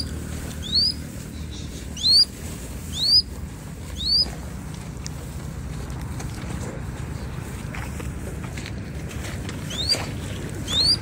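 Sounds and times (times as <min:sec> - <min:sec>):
hawk shrill whistled calls: 0:00.0 - 0:02.3, 0:02.9 - 0:03.3, 0:04.0 - 0:04.3, 0:10.7 - 0:11.0.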